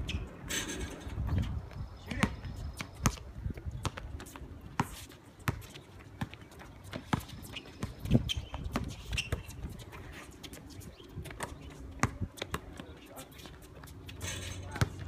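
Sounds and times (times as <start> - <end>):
players' footsteps: 0.8 - 15.0
basketball bouncing on hard court: 2.1 - 3.2, 3.8 - 9.7, 11.2 - 12.9, 14.7 - 15.0.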